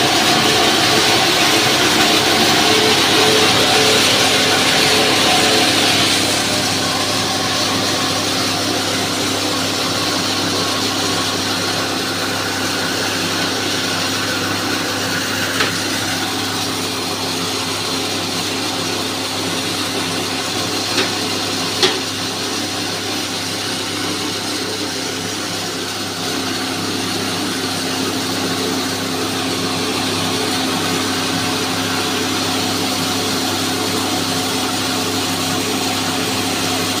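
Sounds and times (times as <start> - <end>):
grain mill humming and whirring: 0.0 - 37.0.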